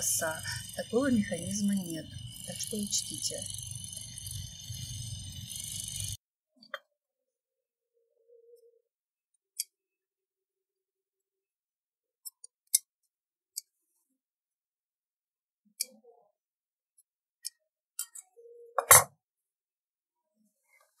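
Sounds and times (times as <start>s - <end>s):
faint hum: 0.0s - 6.2s.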